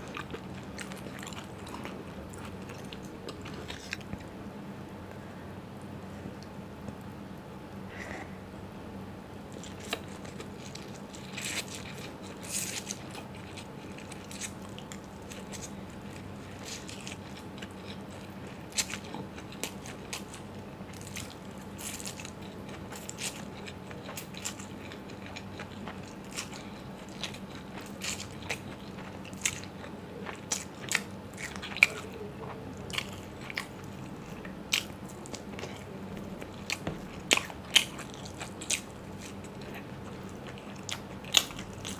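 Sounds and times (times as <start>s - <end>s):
chewing noodles: 0.0s - 4.3s, 9.5s - 41.9s
faint hum: 0.0s - 41.9s.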